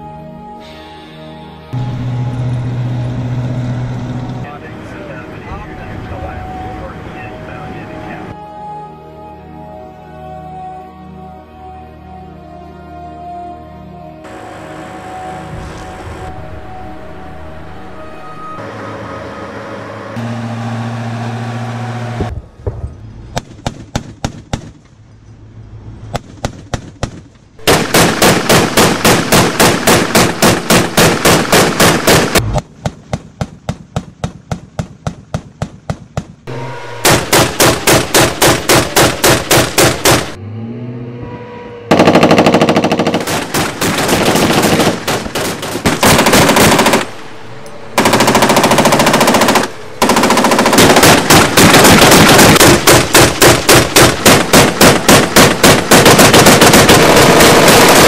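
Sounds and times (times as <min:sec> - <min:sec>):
vehicle turret guns firing bursts: 0:23.4 - 0:24.8, 0:26.2 - 0:40.4, 0:41.9 - 0:47.2, 0:48.0 - 0:58.0.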